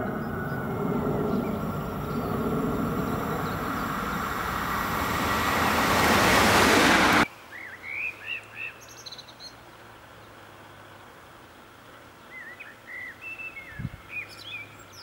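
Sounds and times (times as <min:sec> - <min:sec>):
birds chirping: 0:00.0 - 0:07.2
train passing on rails: 0:00.0 - 0:07.3.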